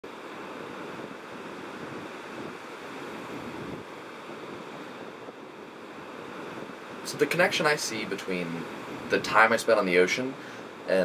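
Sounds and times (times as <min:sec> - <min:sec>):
ocean waves washing up beach: 0:00.1 - 0:11.0.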